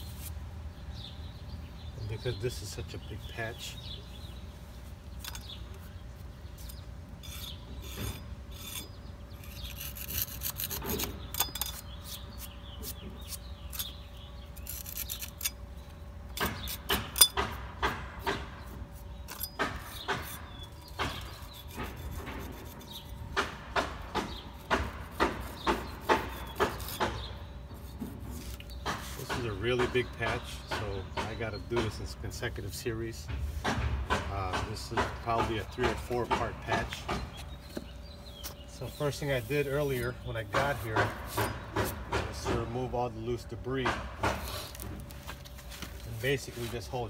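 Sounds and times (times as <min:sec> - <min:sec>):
hand tool scraping stone: 0:05.2 - 0:15.6, 0:18.9 - 0:23.4, 0:24.2 - 0:30.4, 0:34.8 - 0:42.7, 0:44.4 - 0:47.0.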